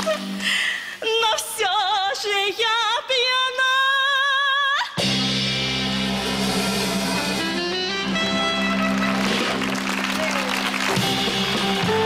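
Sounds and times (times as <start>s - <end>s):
woman singing with vibrato: 0.0s - 5.0s
sustained keyboard chords: 5.0s - 12.0s.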